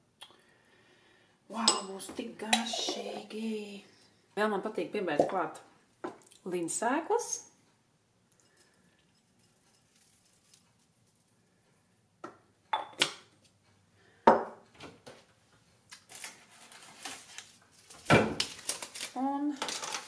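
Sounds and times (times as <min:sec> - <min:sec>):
cups set down on counter: 0:12.2 - 0:13.2, 0:14.3 - 0:14.6.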